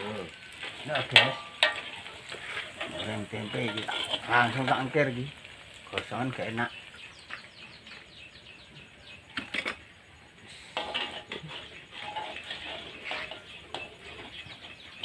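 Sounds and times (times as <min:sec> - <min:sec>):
metal spatula scraping in wok: 0:00.0 - 0:05.7, 0:09.2 - 0:15.0
hot oil crackling: 0:00.0 - 0:15.0.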